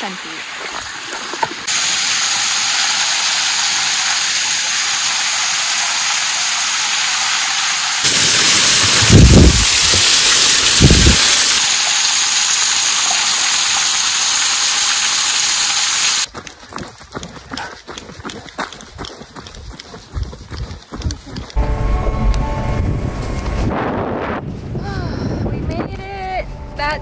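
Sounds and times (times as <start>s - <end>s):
waterfall hissing: 1.6s - 16.3s.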